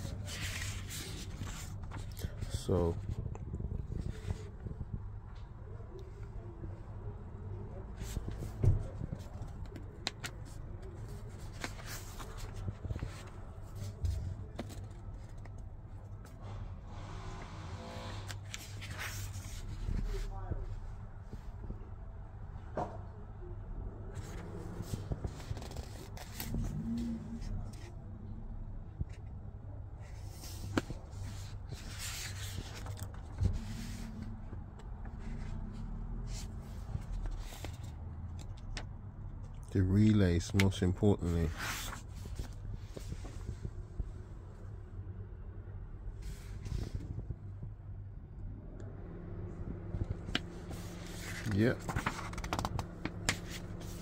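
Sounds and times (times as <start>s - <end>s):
paper pages rustling: 0.0s - 4.8s, 8.0s - 15.6s, 18.3s - 20.3s, 24.1s - 26.8s, 30.1s - 34.4s, 35.0s - 38.8s, 40.5s - 43.7s, 50.0s - 54.0s
low handling rumble: 0.0s - 39.4s, 41.6s - 54.0s
steady low hum: 0.0s - 54.0s.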